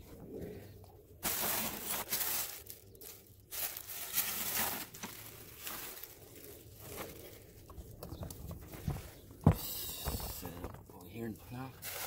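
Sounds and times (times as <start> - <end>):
plastic bag crinkling and rustling: 1.2 - 8.8, 11.8 - 12.0.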